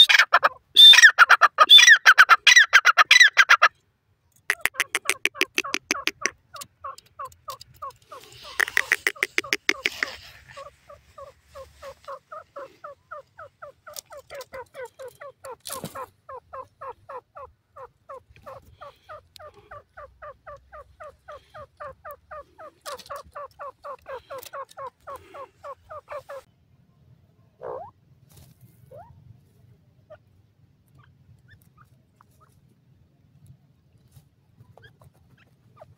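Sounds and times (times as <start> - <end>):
francolin calling: 7.8 - 13.5.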